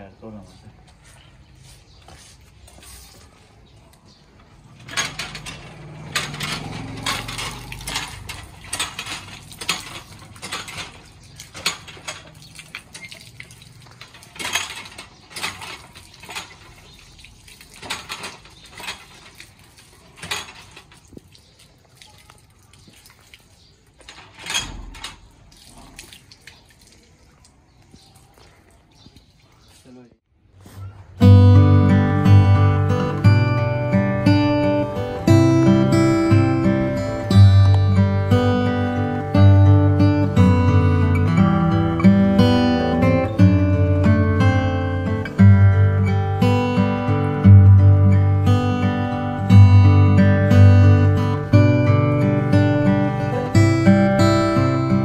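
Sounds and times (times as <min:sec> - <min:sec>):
hand pump clanking: 0:04.2 - 0:21.6, 0:23.9 - 0:25.8, 0:31.6 - 0:55.0
water gushing and splashing: 0:05.0 - 0:29.6.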